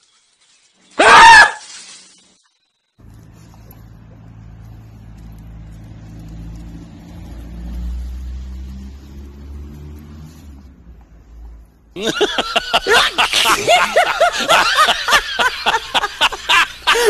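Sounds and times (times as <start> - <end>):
car engine humming: 3.0 - 16.9
person laughing loudly: 12.0 - 17.0.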